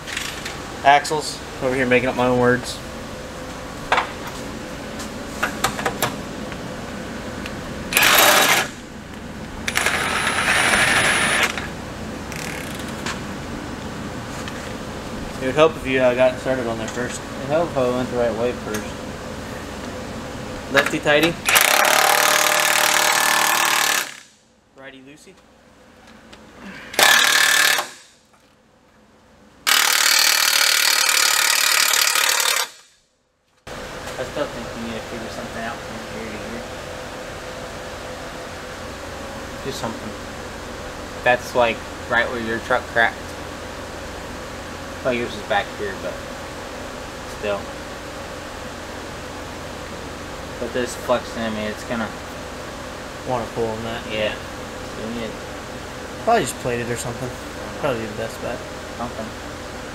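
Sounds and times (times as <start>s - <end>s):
power wrench spinning nut: 7.9s - 8.8s, 9.7s - 11.7s, 12.3s - 12.9s, 21.4s - 24.3s, 27.0s - 28.1s, 29.7s - 33.0s.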